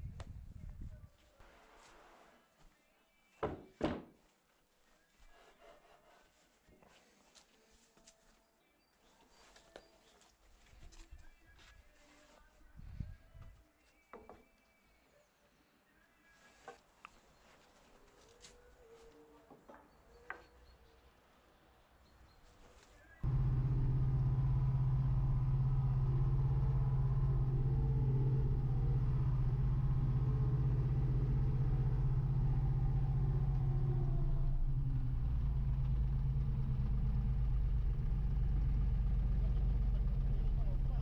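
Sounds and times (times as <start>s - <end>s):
wheel loader engine running: 23.2s - 41.0s.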